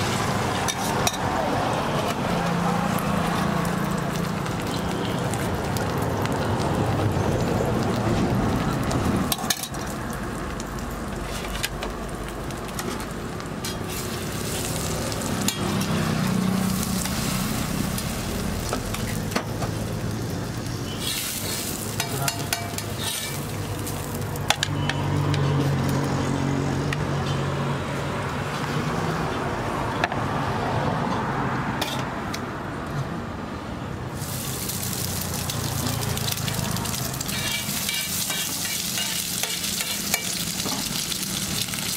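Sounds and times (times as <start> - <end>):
egg sizzling on a griddle: 0.0 - 24.6, 34.1 - 41.9.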